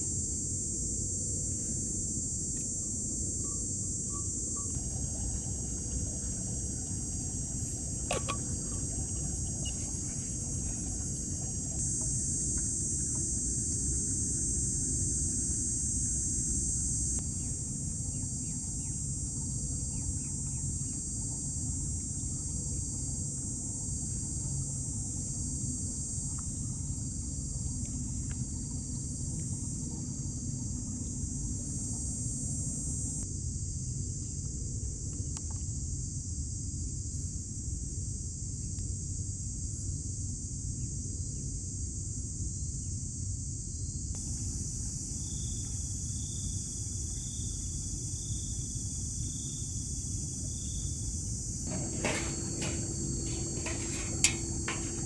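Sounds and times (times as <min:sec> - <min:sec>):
high-pitched insect chorus: 0:00.0 - 0:34.3, 0:35.4 - 0:55.0
constant low rumble: 0:00.0 - 0:40.9, 0:44.1 - 0:55.0.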